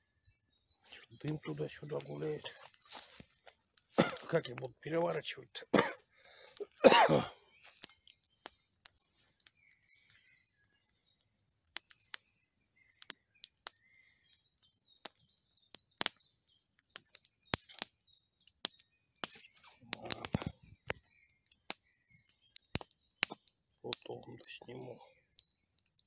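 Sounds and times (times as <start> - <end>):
campfire crackling and popping: 0.0 - 26.0
faint birdsong: 0.0 - 26.0.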